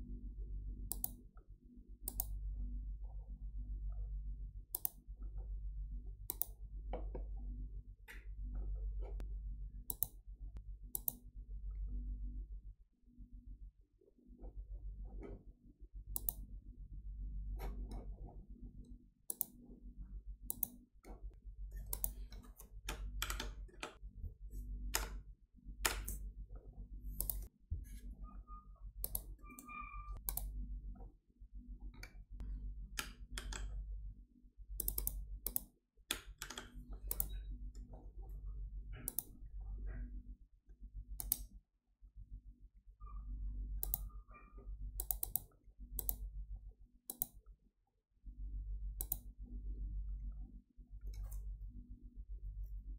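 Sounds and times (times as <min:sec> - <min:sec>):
low steady hum: 0:00.0 - 0:47.5, 0:48.2 - 0:52.9
computer mouse clicking: 0:00.9 - 0:01.4, 0:02.0 - 0:02.5, 0:04.7 - 0:05.1, 0:06.2 - 0:07.4, 0:08.1 - 0:10.2, 0:10.9 - 0:11.3, 0:16.1 - 0:16.5, 0:18.8 - 0:19.6, 0:20.4 - 0:24.0, 0:25.8 - 0:26.3, 0:27.1 - 0:27.5, 0:29.0 - 0:30.5, 0:32.9 - 0:33.8, 0:34.8 - 0:37.9, 0:39.0 - 0:39.4, 0:41.2 - 0:41.5, 0:43.8 - 0:46.3, 0:47.1 - 0:47.4, 0:49.0 - 0:49.4, 0:51.0 - 0:51.5.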